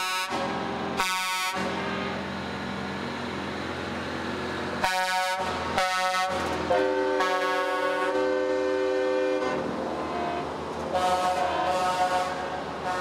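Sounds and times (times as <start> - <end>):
truck engine drone: 0.0 - 13.0
truck air horn blasts: 1.0 - 2.1, 4.8 - 13.0.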